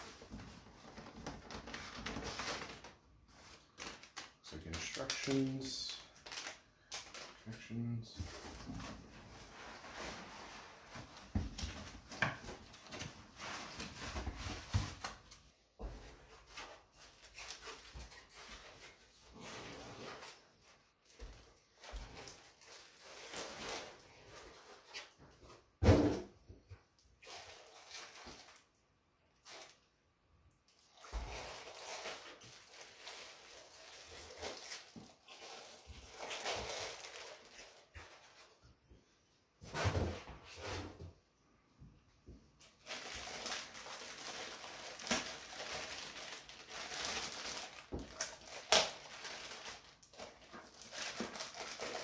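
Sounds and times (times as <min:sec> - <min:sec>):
plastic wrap rustling: 0:00.0 - 0:25.6, 0:27.2 - 0:29.9, 0:30.7 - 0:38.7, 0:42.6 - 0:52.0
plastic bag crinkling: 0:00.1 - 0:10.2, 0:21.8 - 0:24.9, 0:27.2 - 0:28.7, 0:30.7 - 0:38.5, 0:42.6 - 0:52.0.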